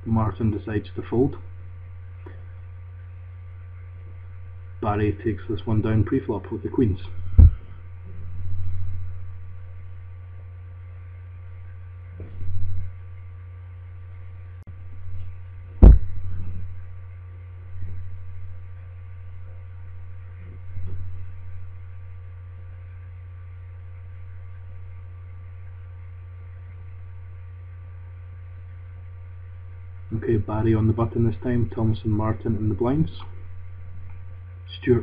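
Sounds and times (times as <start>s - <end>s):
electrical hum with whine: 0.0s - 35.0s
soft low thumps: 7.2s - 10.1s, 12.1s - 13.1s, 14.7s - 17.1s, 17.7s - 22.4s.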